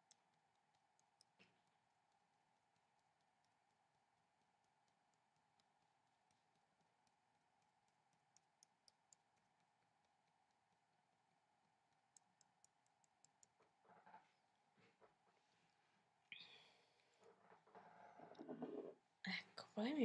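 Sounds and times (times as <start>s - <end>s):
soft rustling: 13.3s - 19.1s.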